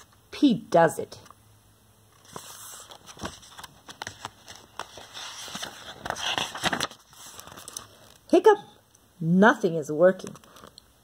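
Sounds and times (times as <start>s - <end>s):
book pages rustling: 2.1s - 8.3s, 10.3s - 10.8s.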